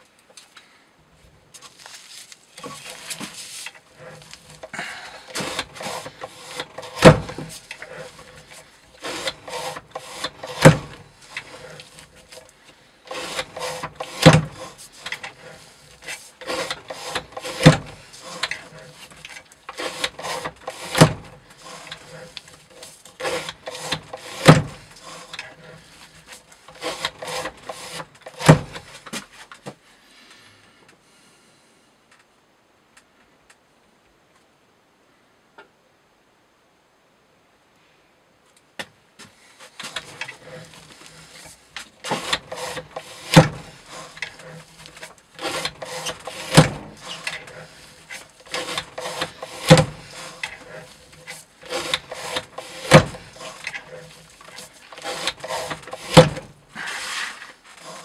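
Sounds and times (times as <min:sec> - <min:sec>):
rope rasping across knife blade: 0:02.6 - 0:12.5, 0:13.1 - 0:29.1, 0:39.8 - 0:58.0.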